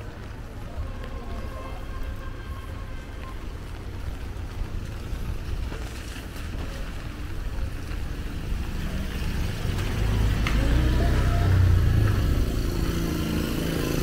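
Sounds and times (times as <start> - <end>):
street noise: 0.0 - 14.0
vehicle engine rumble: 0.0 - 14.0.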